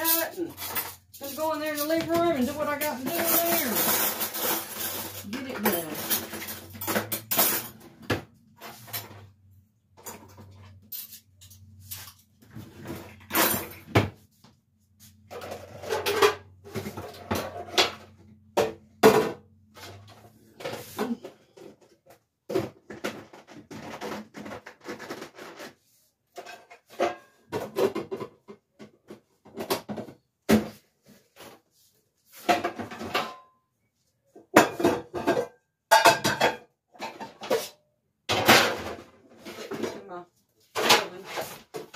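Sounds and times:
dishes clinking and clattering: 0.0 - 9.3, 15.3 - 21.8, 26.4 - 30.2, 32.4 - 33.5, 34.4 - 40.0.

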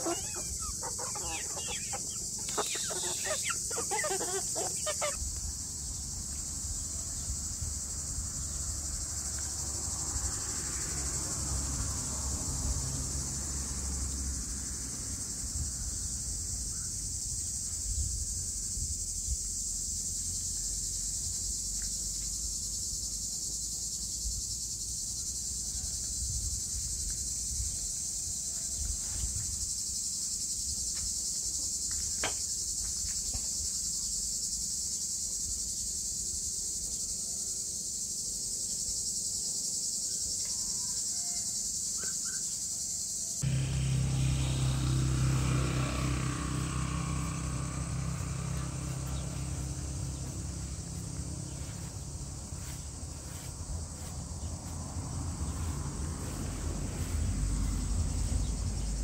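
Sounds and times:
insects chorus: 0.0 - 59.0.

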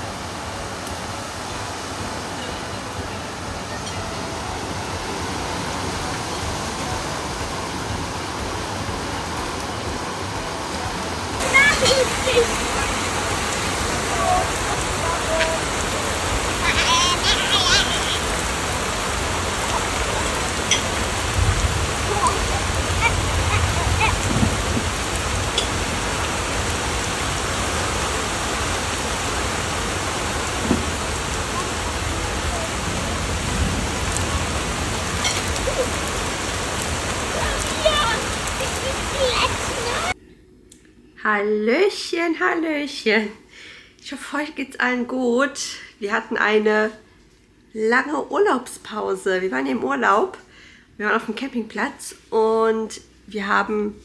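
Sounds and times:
heavy rain on trees and grass: 0.0 - 40.2.

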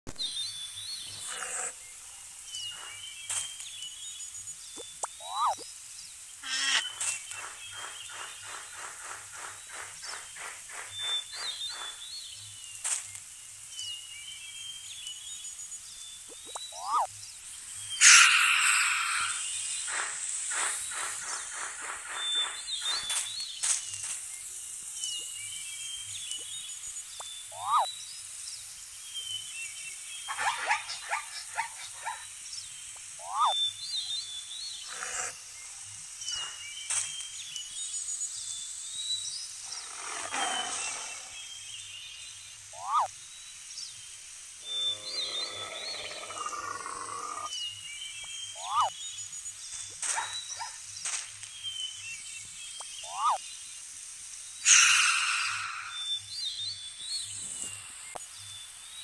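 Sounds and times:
birds chirping: 0.0 - 59.0
pitched growling call: 1.2 - 1.8, 18.0 - 19.4, 39.7 - 41.4, 44.6 - 47.5, 54.6 - 56.1
tiger roaring: 39.7 - 41.3, 44.7 - 47.5
short sharp animal calls: 54.7 - 56.0.

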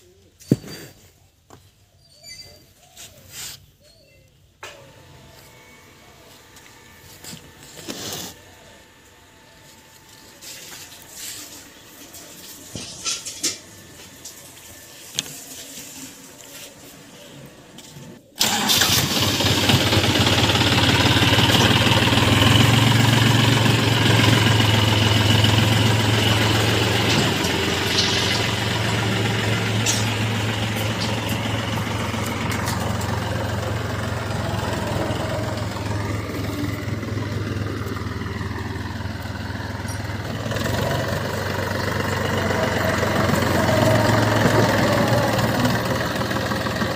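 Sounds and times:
tractor diesel engine running: 4.6 - 46.9.

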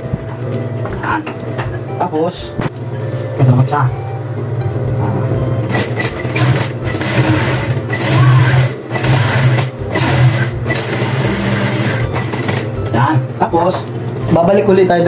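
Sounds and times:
sewing machine stitching: 5.7 - 12.7.

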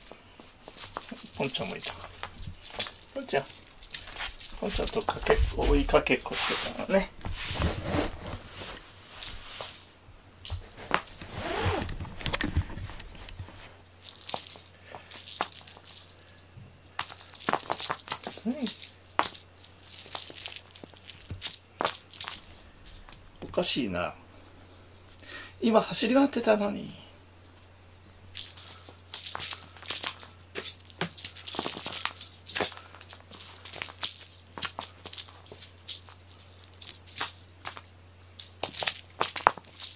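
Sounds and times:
cat rustling and scraping: 0.0 - 16.3
ribbon rustling: 0.0 - 23.2, 28.3 - 39.9.

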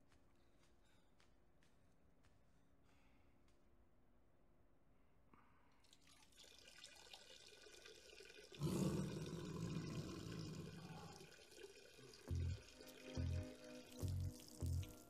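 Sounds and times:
urine splashing into toilet bowl: 5.8 - 15.0.

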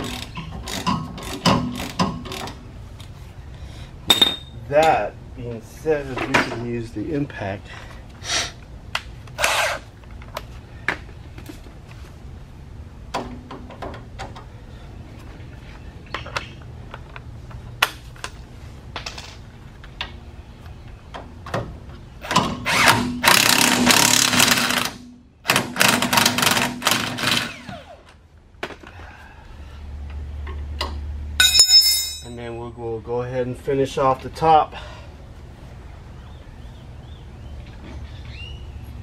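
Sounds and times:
tools clicking and knocking: 0.0 - 2.6
impact wrench hammering: 4.1 - 4.5, 31.4 - 32.4.

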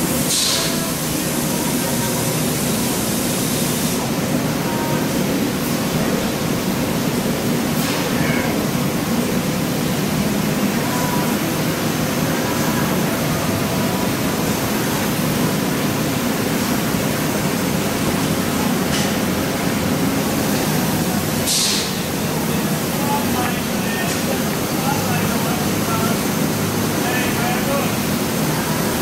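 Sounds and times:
laser cutter hissing: 0.0 - 29.0.

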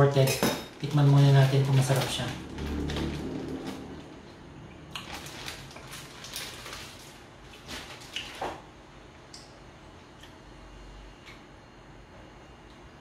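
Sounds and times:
person chewing frozen fruit: 4.6 - 8.6.

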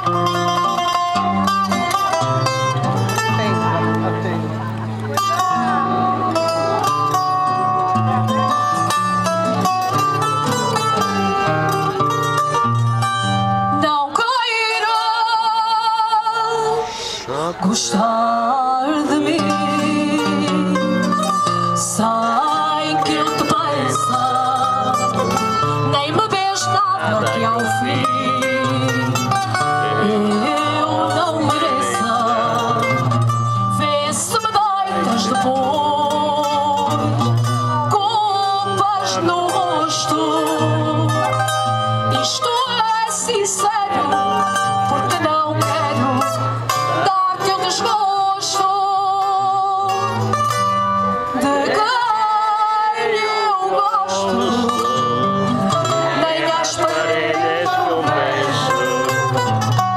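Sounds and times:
plucked guitars playing: 0.0 - 59.9
woman singing with vibrato: 13.7 - 50.2, 51.1 - 59.4.

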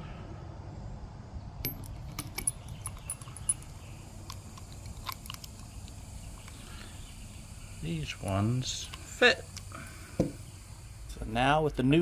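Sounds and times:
metal lug nuts clinking: 1.6 - 6.9.

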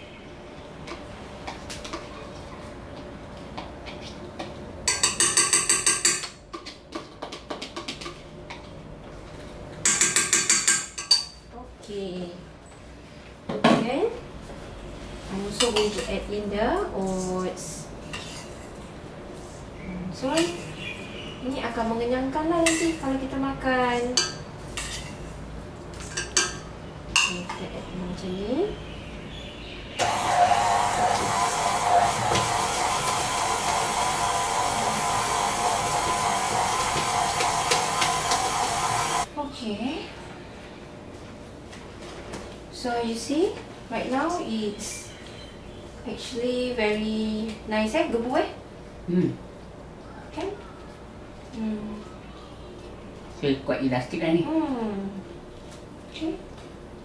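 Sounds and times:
spoon clinking on ceramic bowl: 4.9 - 6.4
stand mixer humming: 30.0 - 39.3.

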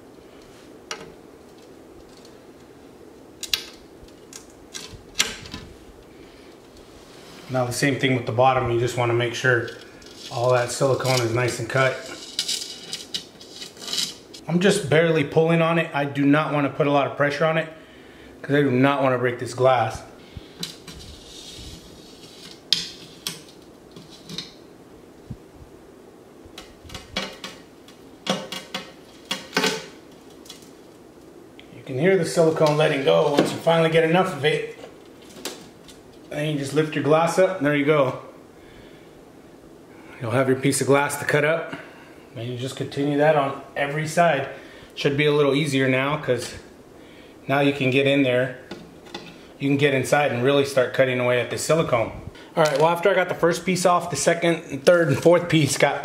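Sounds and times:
silicone seams snapping and crackling: 3.4 - 5.7, 26.5 - 31.7
razor blade scraping glass: 11.9 - 14.3.

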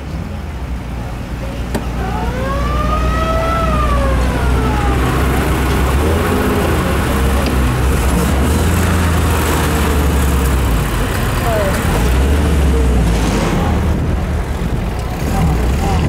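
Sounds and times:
jeep engine running: 0.0 - 16.0
siren-like wail: 2.0 - 7.2.

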